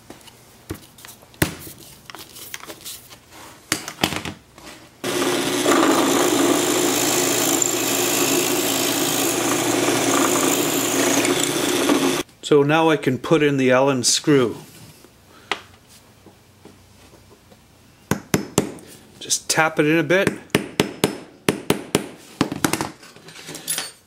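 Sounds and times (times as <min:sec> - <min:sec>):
drill press humming: 0:05.0 - 0:12.2.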